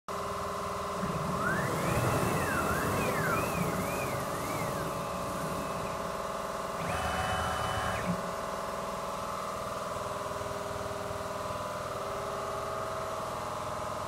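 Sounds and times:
steady machine hum: 0.1s - 14.0s
stepper motors whining: 1.0s - 8.4s.

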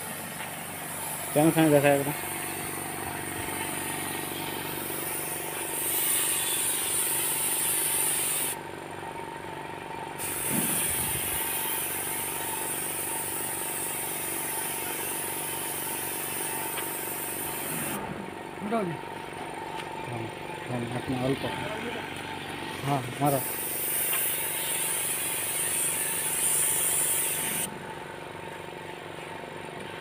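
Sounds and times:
air compressor running: 0.0s - 30.0s
spray gun air hiss: 0.1s - 8.6s, 10.2s - 18.0s, 23.2s - 27.7s.

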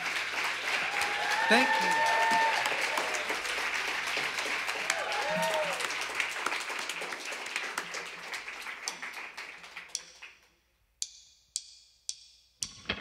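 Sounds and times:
audience applause: 0.0s - 9.9s.

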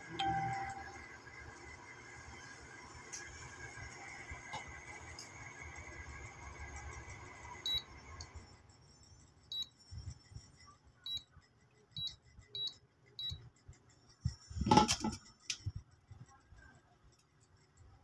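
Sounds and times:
steady hum: 0.0s - 18.0s
short high beeps: 0.1s - 0.9s.

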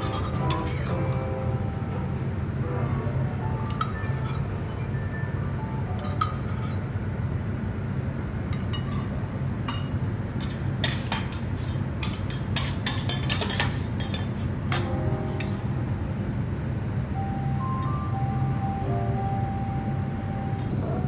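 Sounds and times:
metal utensils clinking on cookware: 0.0s - 1.2s, 6.0s - 6.8s, 8.5s - 15.6s
steady low hum: 0.0s - 21.0s.

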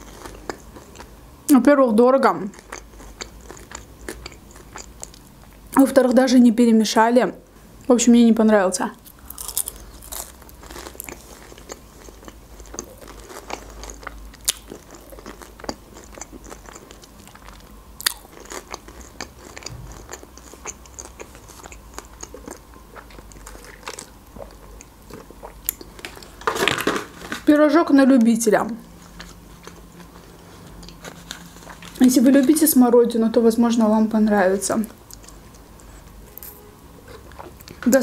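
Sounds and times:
crunchy chewing: 0.0s - 1.2s, 2.5s - 5.7s, 9.0s - 26.5s, 28.8s - 32.3s.

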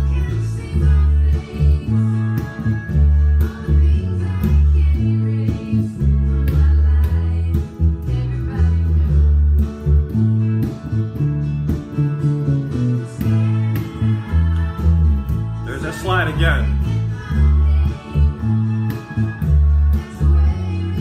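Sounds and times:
drums: 0.0s - 21.0s
electric bass line: 0.0s - 21.0s
guitar: 0.0s - 21.0s
person singing: 13.2s - 19.1s.

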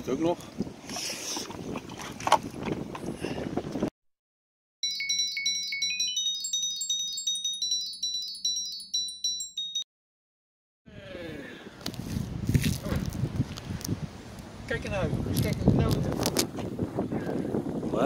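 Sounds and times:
outdoor wind: 0.0s - 3.9s, 10.9s - 18.0s
tinkling bell-like jingle: 4.8s - 9.9s.

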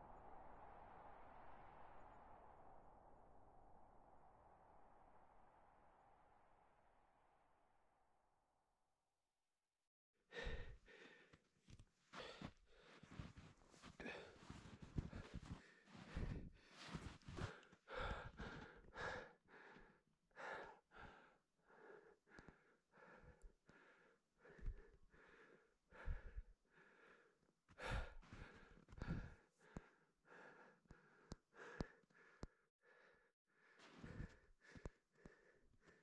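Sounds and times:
person breathing hard: 10.3s - 36.0s.

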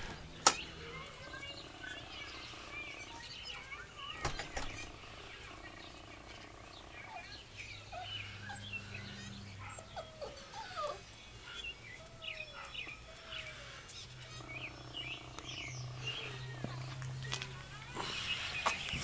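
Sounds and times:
puppies whining: 0.0s - 19.0s
puppies yipping: 0.1s - 19.0s.

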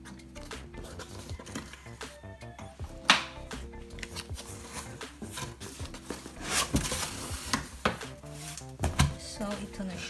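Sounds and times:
cardboard and foam packaging rubbing: 0.5s - 2.0s, 4.0s - 9.1s.

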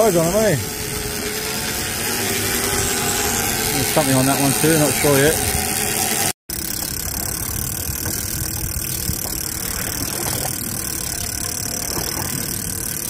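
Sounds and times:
steady motor noise: 0.0s - 13.0s
wind: 0.0s - 13.0s
sea: 6.6s - 13.0s.

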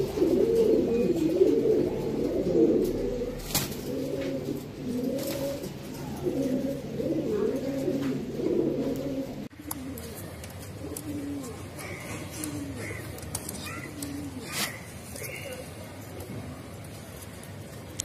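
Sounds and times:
pigeons cooing: 0.0s - 17.9s.

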